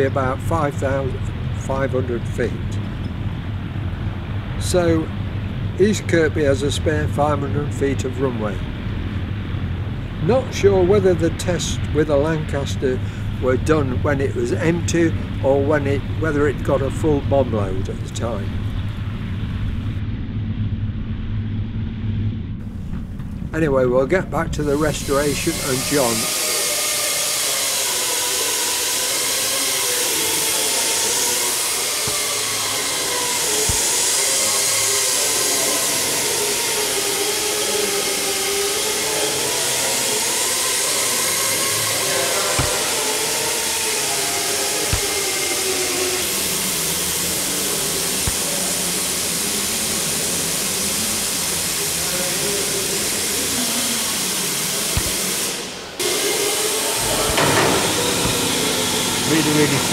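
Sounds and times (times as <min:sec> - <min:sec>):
blower rushing hiss: 0:24.3 - 0:59.9.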